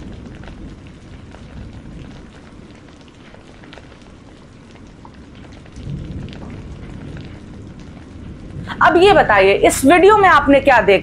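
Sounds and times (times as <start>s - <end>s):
muddy water rushing: 8.5s - 11.0s.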